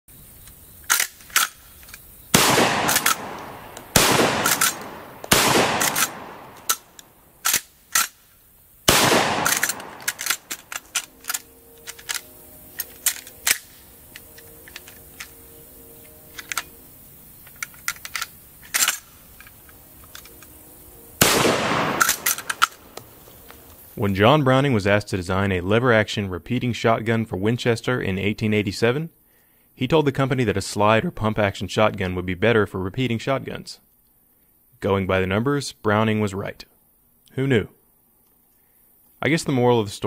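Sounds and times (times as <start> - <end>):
metallic lever action clicks: 0.9 - 2.0, 2.8 - 8.2, 9.2 - 15.3, 17.5 - 20.5, 21.9 - 23.1
shotgun blasts: 2.3 - 6.9, 8.9 - 10.6, 21.2 - 22.6.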